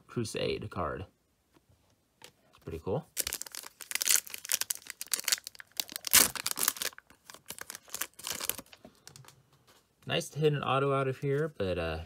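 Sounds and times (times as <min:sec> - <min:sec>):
foil wrapper tearing and crinkling: 0:03.2 - 0:08.8.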